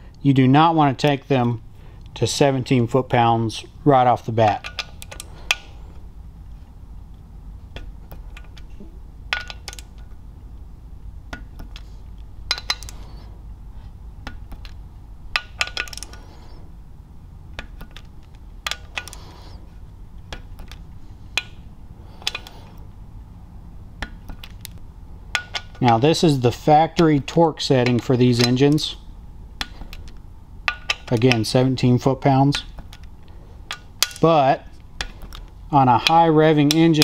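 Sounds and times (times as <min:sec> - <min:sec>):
low steady hum: 0:00.0 - 0:37.0
ratchet metallic clicks: 0:36.0 - 0:37.0.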